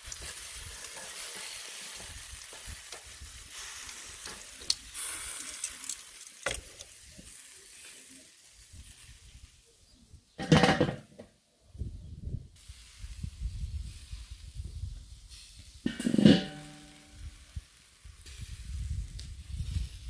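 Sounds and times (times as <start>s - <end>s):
meat sizzling on a grill: 0.0s - 10.0s, 12.6s - 20.0s
steel grill lid clattering: 10.4s - 11.1s, 15.9s - 17.0s.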